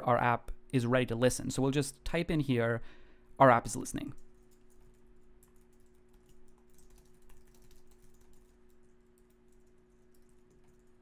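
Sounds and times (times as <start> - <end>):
low steady hum: 0.0 - 11.0
typing on keyboard: 4.3 - 11.0.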